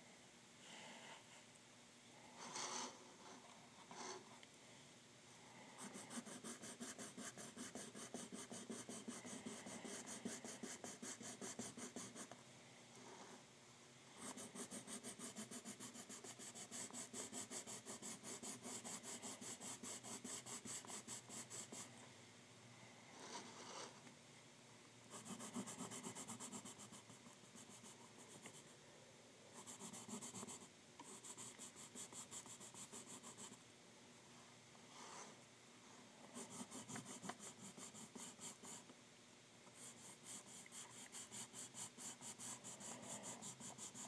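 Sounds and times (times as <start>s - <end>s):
pencil scratching on paper: 5.8s - 12.4s, 14.2s - 21.9s, 25.1s - 28.7s, 29.5s - 33.6s, 36.3s - 38.9s, 39.8s - 44.0s.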